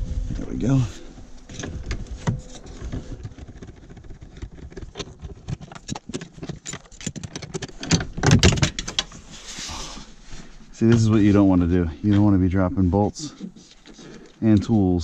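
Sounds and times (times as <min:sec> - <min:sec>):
plastic trim knocking and rattling: 0:01.8 - 0:09.1.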